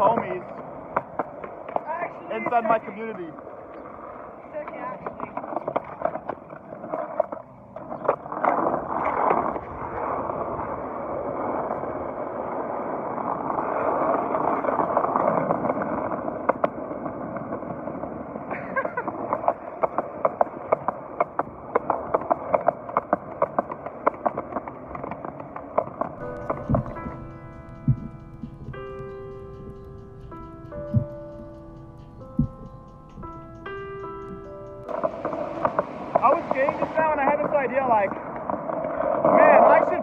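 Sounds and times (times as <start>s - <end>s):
skateboard wheels rolling on concrete: 0.0s - 40.0s.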